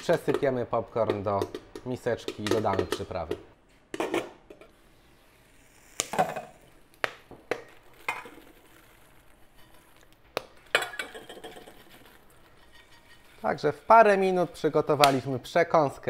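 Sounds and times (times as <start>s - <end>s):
popcorn pouring into metal bowls: 7.7s - 15.4s
metal pot and lid clinking: 10.7s - 15.2s.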